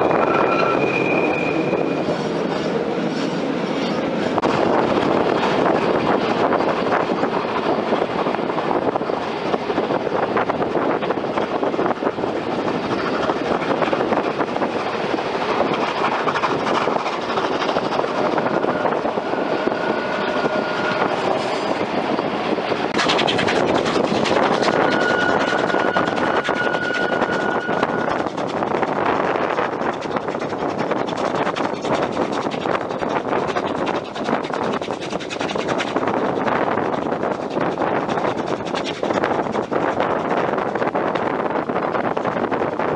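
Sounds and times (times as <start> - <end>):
thin high squeal: 0.0 - 4.0, 18.4 - 22.4, 24.4 - 28.2
train wheels rumbling on rails: 0.0 - 42.9.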